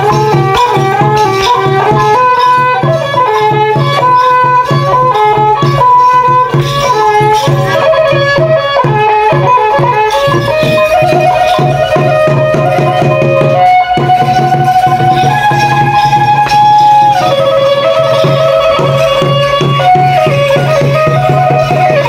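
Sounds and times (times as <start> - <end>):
steady drum beat: 0.0 - 22.0
traditional ensemble melody: 0.0 - 22.0.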